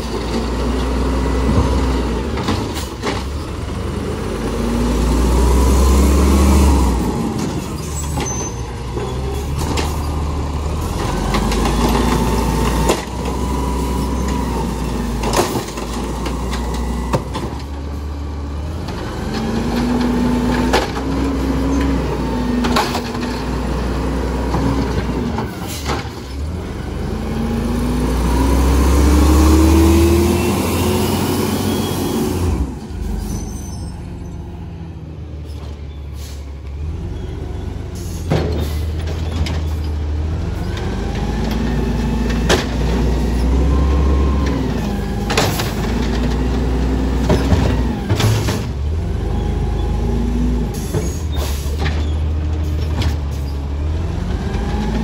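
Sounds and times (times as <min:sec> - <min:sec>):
diesel engine revving: 0:00.0 - 0:55.0
carts banging against hopper: 0:14.6 - 0:17.7, 0:45.1 - 0:46.5.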